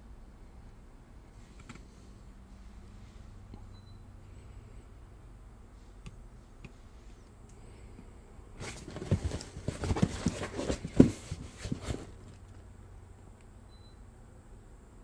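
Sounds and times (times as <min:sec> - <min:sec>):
box thump: 0:08.6 - 0:12.3
cardboard box rubbing and knocking: 0:08.6 - 0:12.3.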